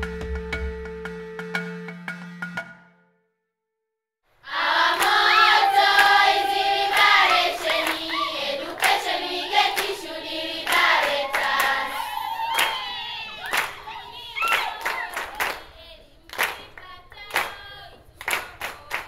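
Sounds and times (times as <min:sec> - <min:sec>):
young voices singing together: 0:04.4 - 0:19.0
hand clapping: 0:04.9 - 0:10.0, 0:10.6 - 0:11.9, 0:12.5 - 0:15.7, 0:16.3 - 0:19.0.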